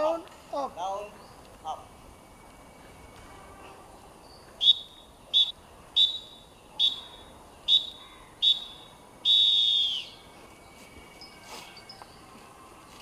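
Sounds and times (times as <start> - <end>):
short whistle blasts: 4.6 - 10.2.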